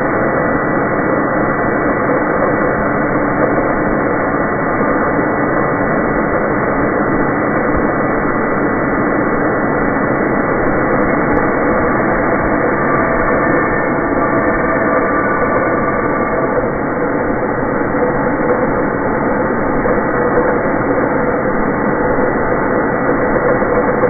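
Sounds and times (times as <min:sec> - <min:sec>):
steady tones: 0:08.8 - 0:24.0
grinding wheel spinning: 0:10.6 - 0:21.7.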